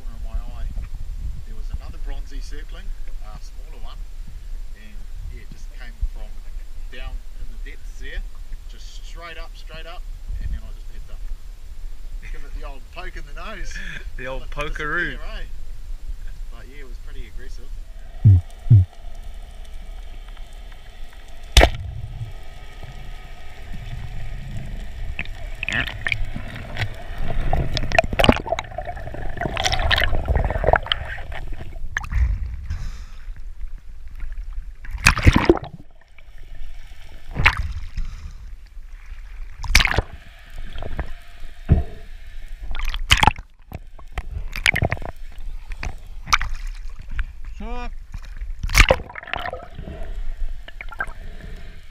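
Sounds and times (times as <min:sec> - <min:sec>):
faint steady hum: 0:00.0 - 0:51.9
underwater gurgling and bubbling: 0:17.7 - 0:32.7, 0:34.9 - 0:38.4, 0:39.3 - 0:47.1, 0:48.6 - 0:51.9.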